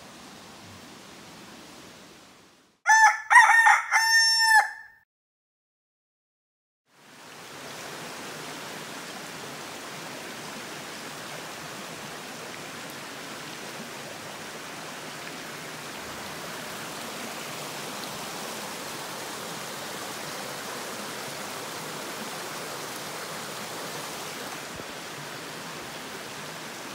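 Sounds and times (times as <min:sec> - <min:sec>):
brook running over rocks: 0:07.1 - 0:26.9.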